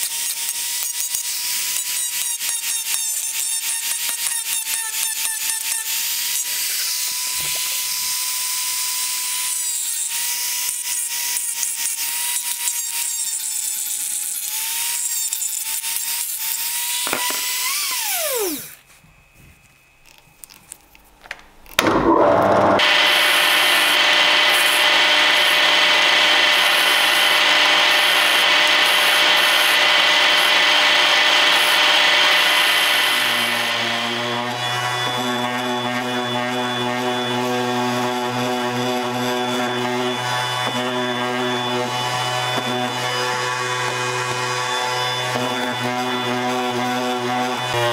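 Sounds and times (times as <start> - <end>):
rotary tool grinding: 0.0 - 18.8, 22.7 - 47.9
polishing wheel running: 22.0 - 47.9.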